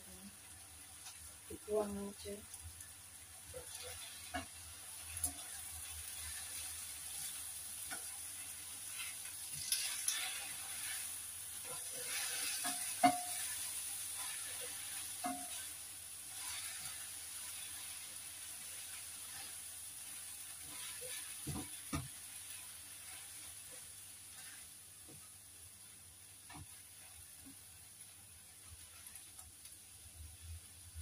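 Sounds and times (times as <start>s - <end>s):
stir-fry sizzling: 0.0s - 31.0s
spatula clinking against pan: 12.4s - 13.5s.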